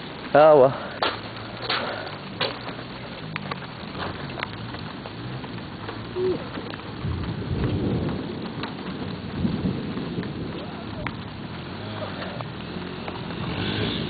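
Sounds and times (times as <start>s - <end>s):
rain falling: 0.0s - 14.0s
sharp raindrop hits: 0.0s - 14.0s
thunder rumble: 0.0s - 14.0s.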